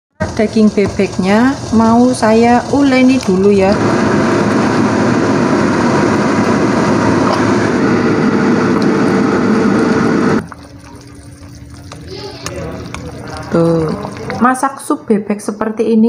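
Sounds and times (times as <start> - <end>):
low hum: 0.2 - 14.9
steady rushing noise: 1.2 - 10.4.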